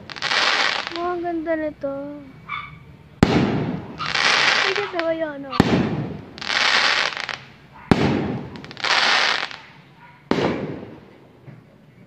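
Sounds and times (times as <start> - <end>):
firework hissing rush: 0.0 - 1.1, 3.2 - 9.8
fireworks bangs: 0.0 - 1.5, 2.4 - 11.7.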